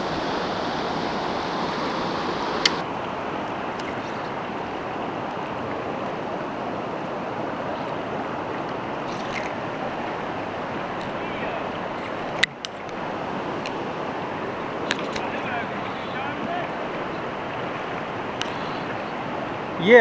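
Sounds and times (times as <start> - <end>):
rocky stream rushing: 0.0 - 20.0.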